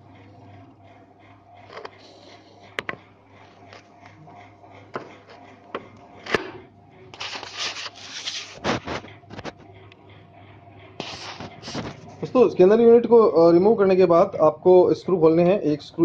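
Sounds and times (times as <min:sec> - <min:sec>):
scraping and rustling: 0:07.2 - 0:09.7.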